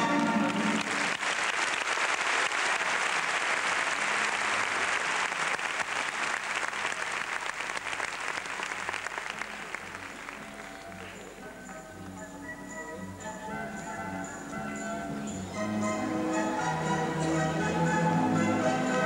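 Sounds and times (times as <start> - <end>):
audience applauding: 0.0 - 11.4.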